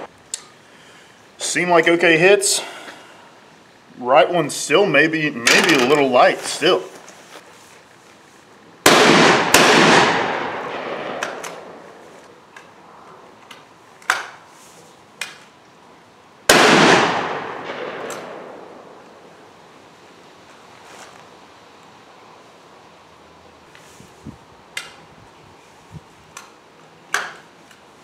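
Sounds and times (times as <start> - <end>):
shotgun shots: 8.8 - 12.0, 16.5 - 19.0.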